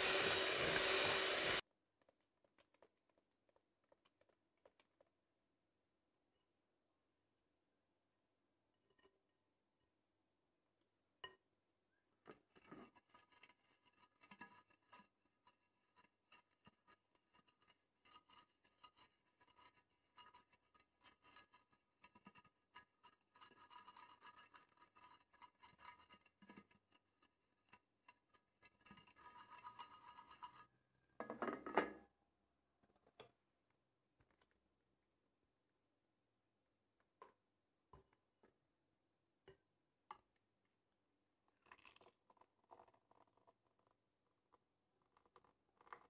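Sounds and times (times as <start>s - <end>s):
pastry brush strokes in cake pan: 12.6s - 30.8s.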